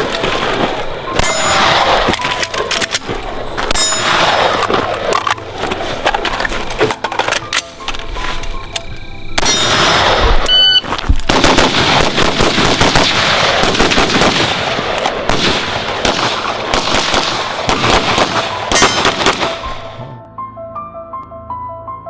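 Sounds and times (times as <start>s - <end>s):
rapid rifle gunfire: 11.3s - 19.7s.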